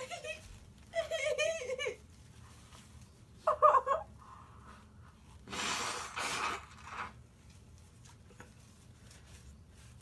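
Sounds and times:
woman blowing nose: 5.4 - 7.2.

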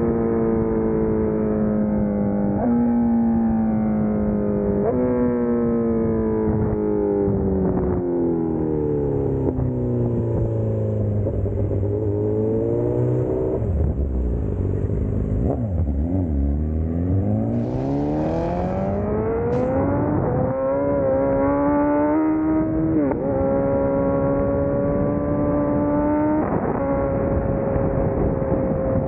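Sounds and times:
motorcycle engine: 9.0 - 29.0.

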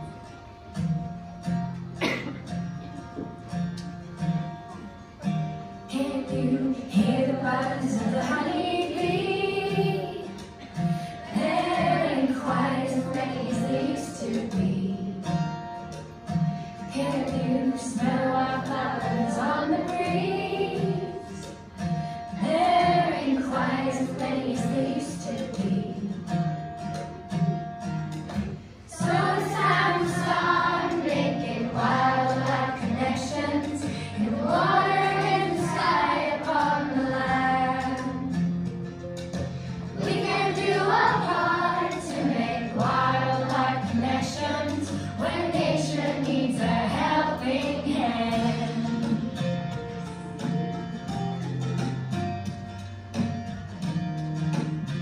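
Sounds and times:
instrumental accompaniment: 0.0 - 55.0
children singing together: 5.9 - 15.3, 16.9 - 21.7, 22.3 - 26.3, 28.9 - 38.6, 39.9 - 49.4.

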